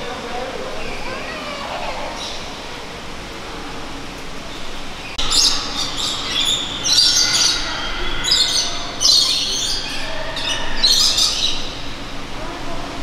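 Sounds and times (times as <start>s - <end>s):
parrots squawking and chirping: 5.1s - 12.1s.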